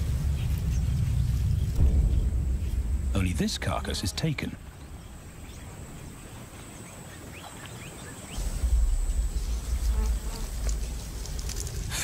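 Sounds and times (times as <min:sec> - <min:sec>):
deep low rumble: 0:00.0 - 0:05.8, 0:08.4 - 0:12.0.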